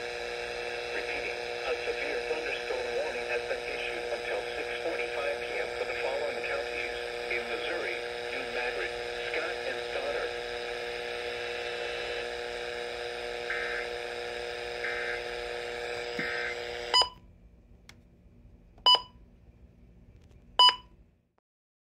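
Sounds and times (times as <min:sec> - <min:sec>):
radio multi-tone hum: 0:00.0 - 0:17.2.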